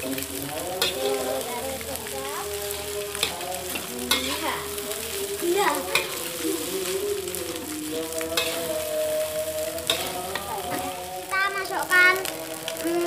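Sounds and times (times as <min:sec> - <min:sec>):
metal spatula scraping a wok: 0:00.0 - 0:11.1
rice sizzling in a wok: 0:00.0 - 0:13.0
spatula clinking on wok: 0:03.2 - 0:04.5, 0:05.9 - 0:06.2, 0:08.4 - 0:08.8.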